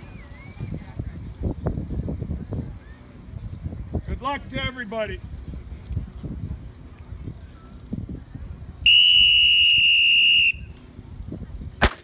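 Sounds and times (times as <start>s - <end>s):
starting pistol shot: 11.8s - 12.0s.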